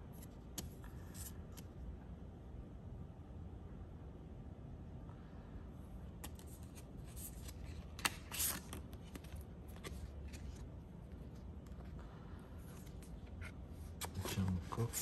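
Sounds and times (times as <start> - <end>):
plastic cards clicking and rustling: 6.2 - 11.9.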